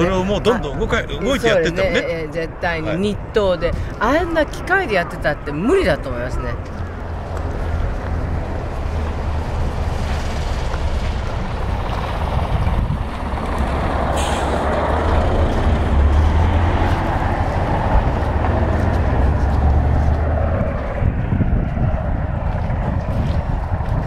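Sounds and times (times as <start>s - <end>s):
wind buffeting microphone: 0.0s - 24.0s
short hiss: 14.2s - 14.6s.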